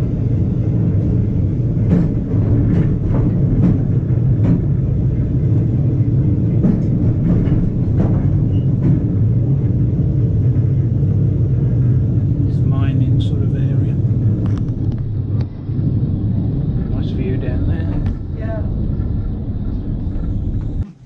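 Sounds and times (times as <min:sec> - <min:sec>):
tram wheels and motor rumbling: 0:00.0 - 0:21.0
clicks and knocks on rails: 0:01.7 - 0:09.8.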